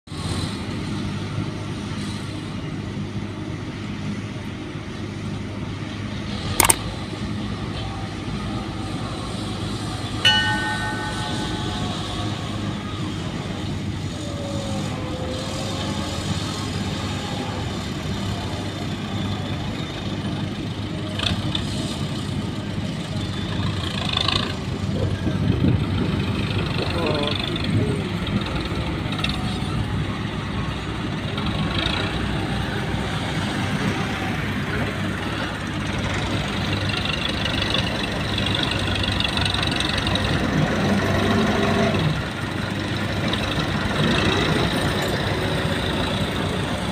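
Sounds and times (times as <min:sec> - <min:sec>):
diesel engines running: 0:00.1 - 0:46.9
sharp click: 0:06.6 - 0:06.8
brief higher tone: 0:10.3 - 0:13.0.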